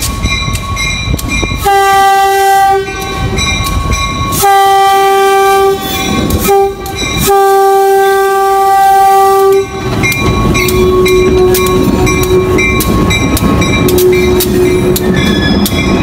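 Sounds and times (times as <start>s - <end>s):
locomotive bell ringing: 0.0s - 16.0s
train air horn: 1.6s - 3.4s, 4.4s - 10.0s, 10.6s - 12.7s
rumble of engine and wheels: 9.2s - 16.0s.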